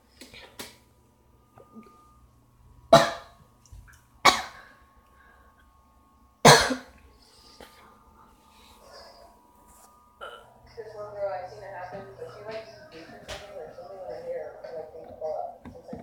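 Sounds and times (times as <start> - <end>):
person coughing: 2.9 - 3.4, 4.2 - 4.6, 6.4 - 7.0.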